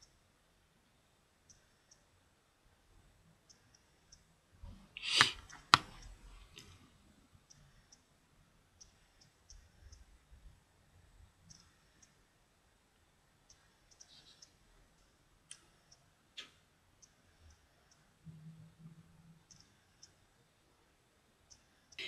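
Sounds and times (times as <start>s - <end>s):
faint clicks: 11.4s - 12.2s.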